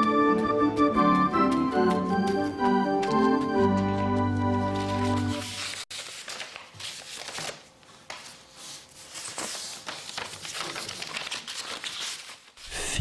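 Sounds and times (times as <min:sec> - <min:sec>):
pages tapping on desk: 0:01.4 - 0:08.3
paper rustling and crinkling: 0:02.2 - 0:12.7.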